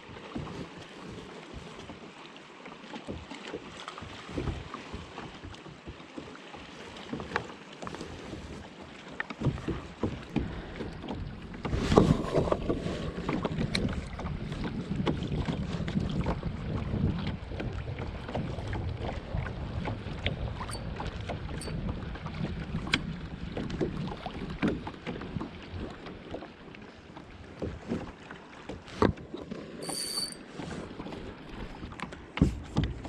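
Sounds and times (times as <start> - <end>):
water lapping against kayak: 0.0 - 33.0
wind buffeting microphone: 10.4 - 24.7.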